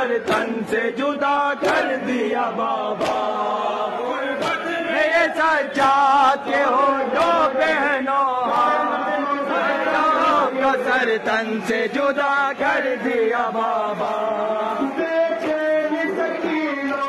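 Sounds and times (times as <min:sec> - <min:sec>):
crowd of men chanting: 0:00.0 - 0:17.0
man singing a lament: 0:00.0 - 0:17.0
chest-beating slaps: 0:03.0 - 0:03.3, 0:04.4 - 0:04.7.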